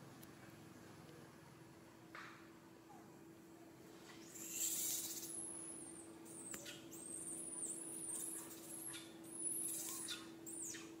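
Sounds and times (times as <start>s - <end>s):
small birds chirping: 4.0s - 11.0s.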